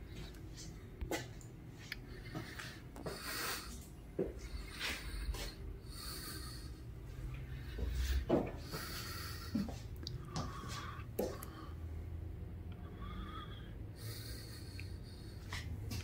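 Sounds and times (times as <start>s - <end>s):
person breathing: 1.8s - 16.0s
footsteps on concrete: 10.4s - 11.4s.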